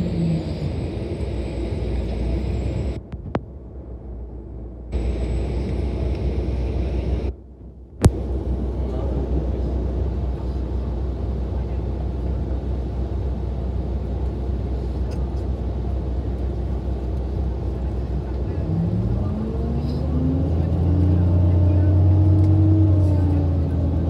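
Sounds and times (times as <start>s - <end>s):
bus engine rumbling: 0.0s - 24.0s.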